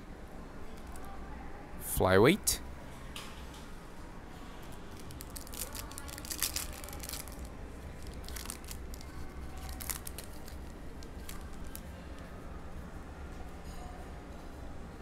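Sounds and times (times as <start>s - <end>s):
foil wrapper crinkling: 5.0s - 11.8s.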